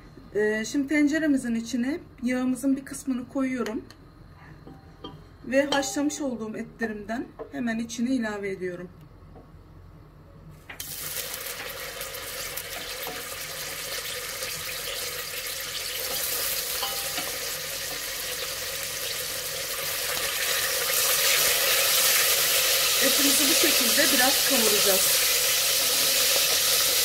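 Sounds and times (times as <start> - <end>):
meat sizzling in hot oil: 10.8 - 27.0.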